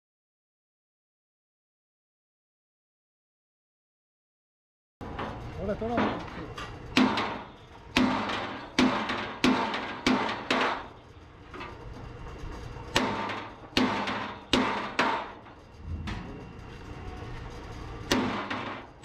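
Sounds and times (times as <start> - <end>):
hammer striking steel: 6.9 - 11.0, 12.9 - 16.4, 18.1 - 19.0.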